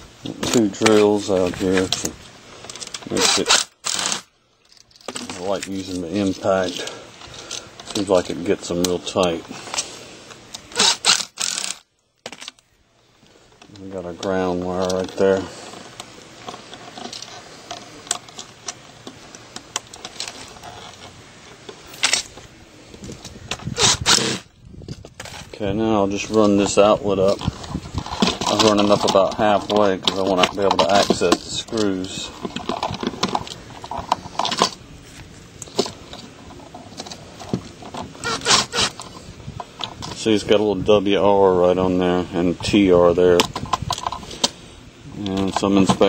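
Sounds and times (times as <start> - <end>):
rubbing on microphone: 23.0 - 40.4.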